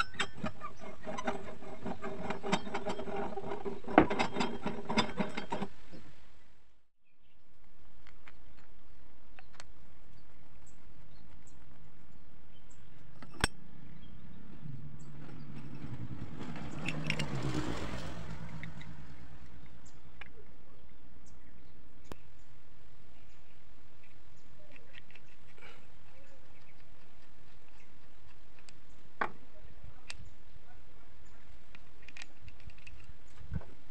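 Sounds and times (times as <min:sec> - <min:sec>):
vehicle passing: 0:14.1 - 0:20.1
small metal parts clicking: 0:15.5 - 0:19.8, 0:24.7 - 0:25.6, 0:31.7 - 0:33.4.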